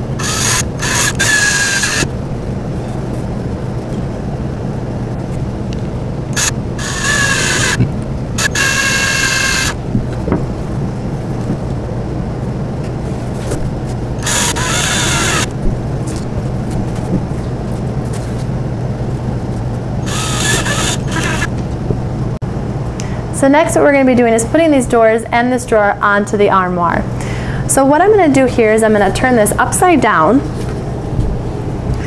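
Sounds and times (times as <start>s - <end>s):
cordless drill motor whining: 0.0s - 2.1s, 6.3s - 9.8s, 14.2s - 15.5s, 20.0s - 21.5s
steady low hum: 0.0s - 32.0s.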